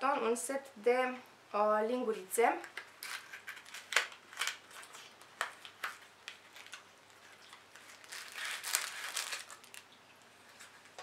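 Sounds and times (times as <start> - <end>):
wrapping crinkling: 2.7 - 11.0.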